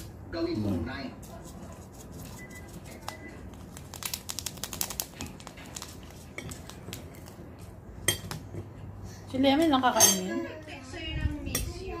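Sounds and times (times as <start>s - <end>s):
packaging crinkling: 2.2s - 7.4s.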